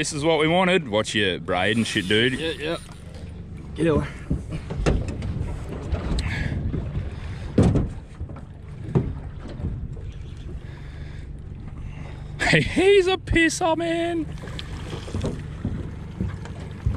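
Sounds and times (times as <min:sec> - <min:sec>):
low rumble: 0:00.0 - 0:16.9
dull knocks: 0:04.0 - 0:09.9, 0:15.0 - 0:16.9.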